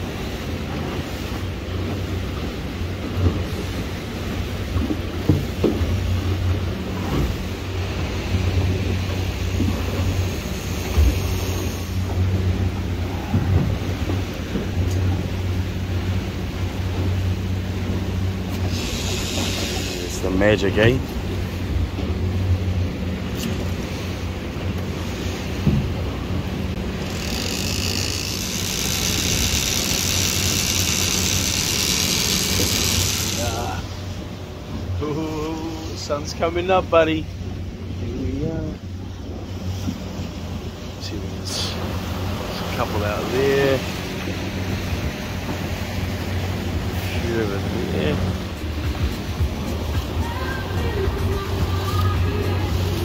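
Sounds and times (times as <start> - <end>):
boat engine humming: 0.0 - 53.0
wind and water rushing: 0.0 - 53.0
high hiss: 18.7 - 20.1.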